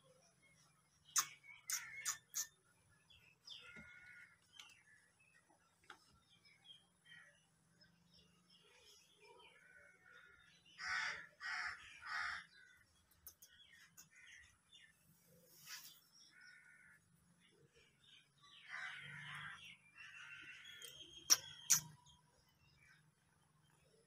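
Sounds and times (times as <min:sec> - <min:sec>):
faint bird chirps: 0:00.0 - 0:24.0
bird harsh calls: 0:01.0 - 0:05.1, 0:08.6 - 0:23.1.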